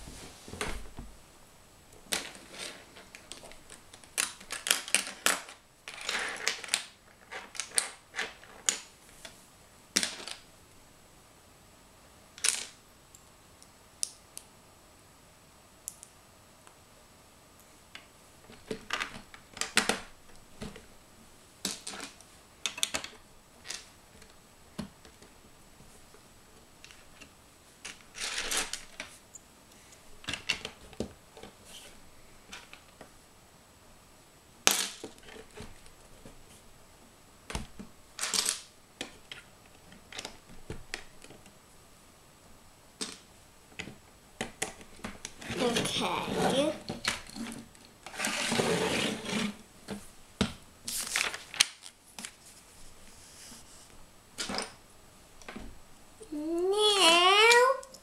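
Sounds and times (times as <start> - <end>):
plastic bricks clicking and clattering: 2.1 - 8.9.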